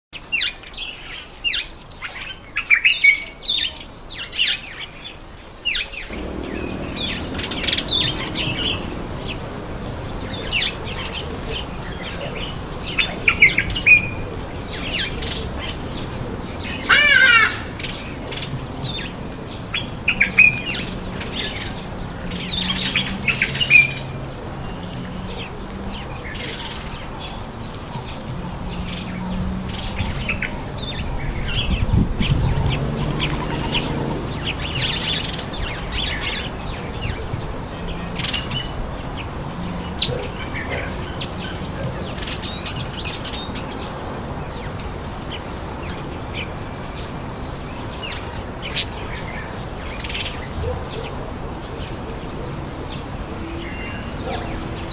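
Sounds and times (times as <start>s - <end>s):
birds chirping: 6.0s - 54.9s
low steady hum: 6.1s - 11.8s.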